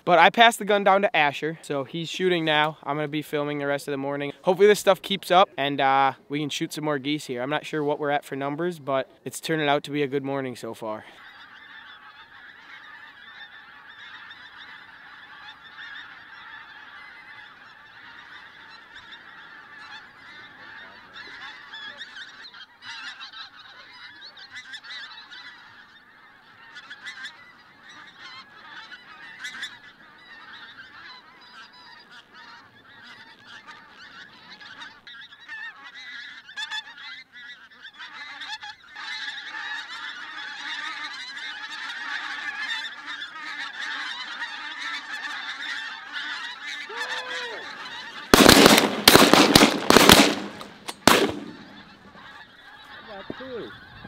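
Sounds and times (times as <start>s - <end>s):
geese honking in flight: 7.0s - 54.0s.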